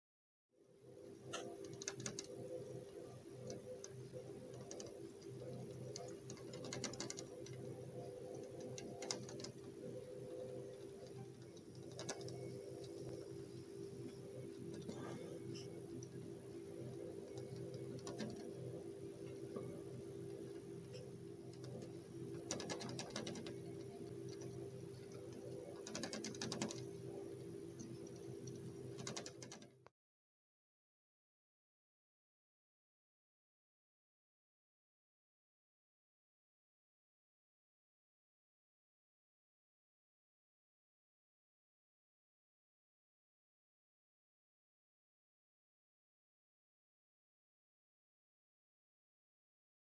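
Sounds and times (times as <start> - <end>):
steady low hum: 0.7 - 29.9
moth wings tapping on glass: 20.9 - 24.6.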